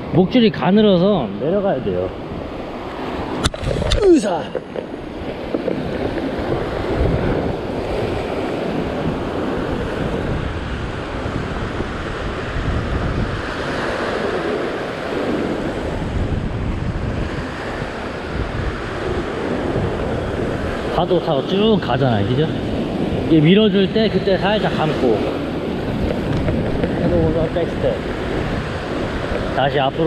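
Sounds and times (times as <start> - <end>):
ocean surf breaking on rocks: 0.0 - 30.0
wind buffeting microphone: 0.0 - 30.0.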